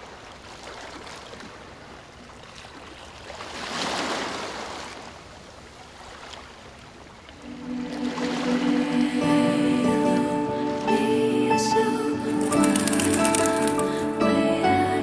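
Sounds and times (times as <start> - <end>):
ocean surf washing onto beach: 7.4 - 14.0.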